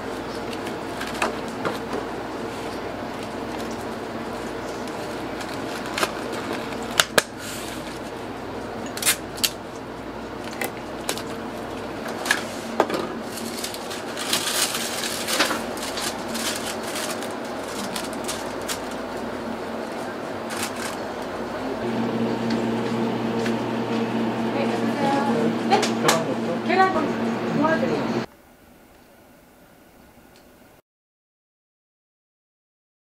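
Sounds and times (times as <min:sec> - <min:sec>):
room noise: 0:00.0 - 0:30.8
plastic crinkling: 0:02.6 - 0:08.1, 0:10.4 - 0:21.5.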